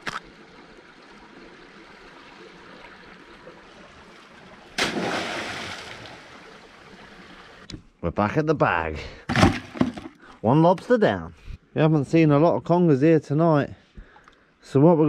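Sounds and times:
loud splash in water: 4.8 - 6.4.

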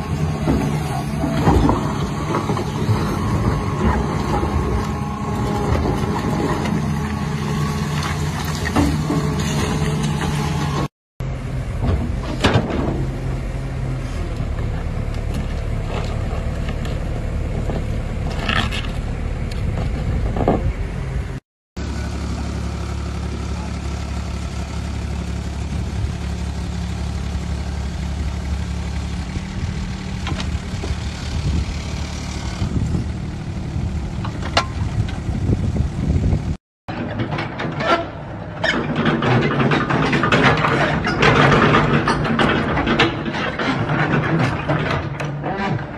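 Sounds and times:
diesel excavator engine: 0.0 - 45.9
machinery clatter: 36.9 - 45.9.

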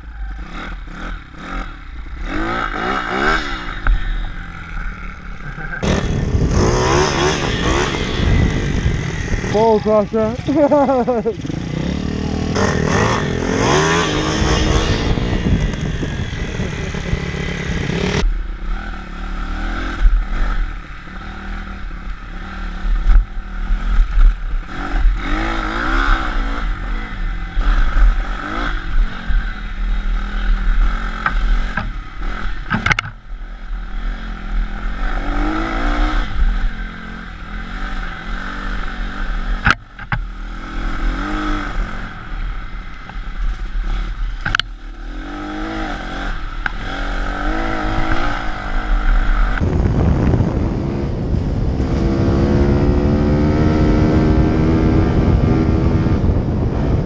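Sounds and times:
motorbike engines revving: 0.0 - 57.0
wind rumble on microphone: 5.8 - 10.5, 11.3 - 18.4, 43.4 - 57.0.

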